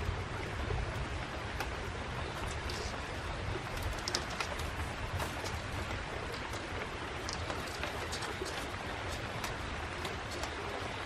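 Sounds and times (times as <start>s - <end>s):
running water: 0.0s - 11.0s
bamboo strips clicking: 3.7s - 10.6s.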